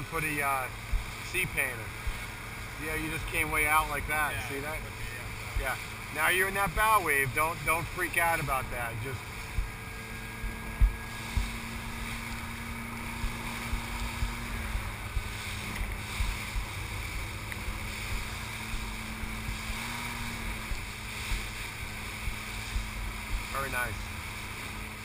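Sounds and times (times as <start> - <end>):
boat engine drone: 0.0 - 25.0
rushing water and spray: 0.0 - 25.0
wind buffeting microphone: 9.0 - 25.0.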